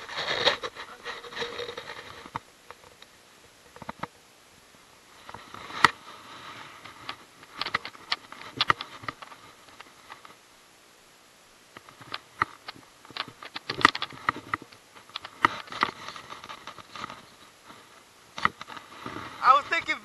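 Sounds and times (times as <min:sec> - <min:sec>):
rustling while handling fish: 0:00.0 - 0:10.5, 0:11.7 - 0:20.0.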